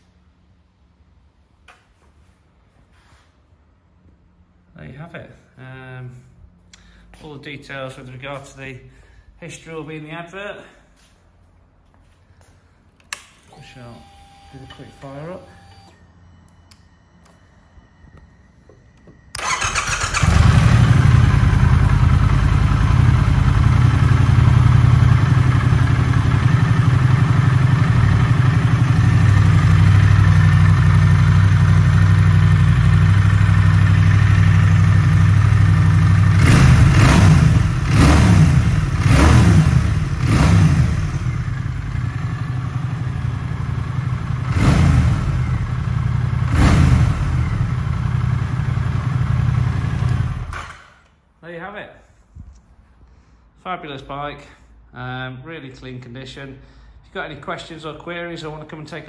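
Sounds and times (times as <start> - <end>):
motorcycle engine starting: 19.3 - 51.1
motorcycle engine idling: 19.4 - 50.5.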